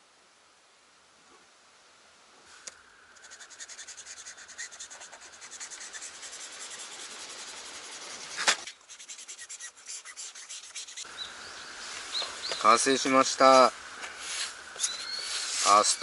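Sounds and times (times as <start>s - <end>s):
marker scratching on paper: 3.2s - 11.1s.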